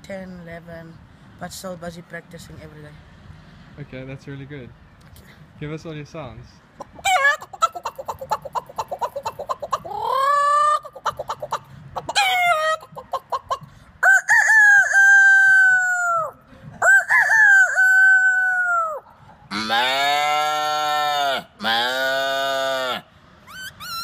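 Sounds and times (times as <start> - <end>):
man clucking like a chicken: 6.8 - 24.0
man imitating rooster crows: 14.0 - 23.0.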